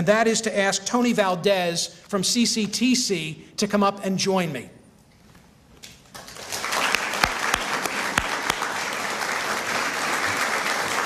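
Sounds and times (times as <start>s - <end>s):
audience applauding: 6.1s - 11.0s.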